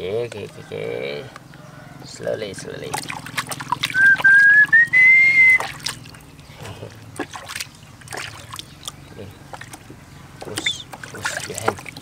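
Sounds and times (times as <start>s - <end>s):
water splashing in plastic tub: 2.6s - 12.0s
high thin whistle: 4.0s - 5.6s.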